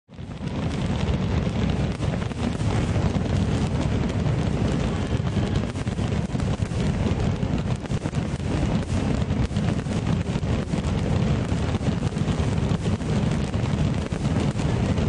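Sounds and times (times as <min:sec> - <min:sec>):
firework cracks: 0:00.1 - 0:15.0
firework shells booming: 0:00.1 - 0:15.0.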